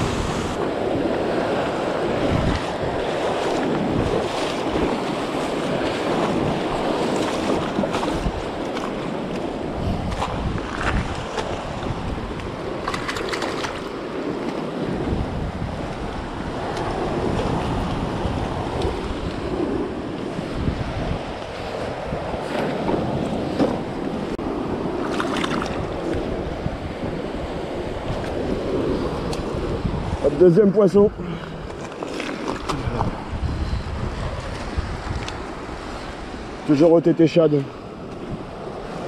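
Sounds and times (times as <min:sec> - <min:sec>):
wind buffeting microphone: 0:00.0 - 0:39.0.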